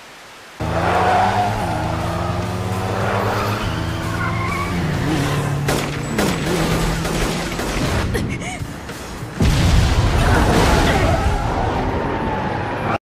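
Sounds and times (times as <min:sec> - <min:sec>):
engines running at speed: 0:00.6 - 0:08.1
tyres squealing: 0:03.2 - 0:06.4
sharp cracks: 0:05.6 - 0:08.2.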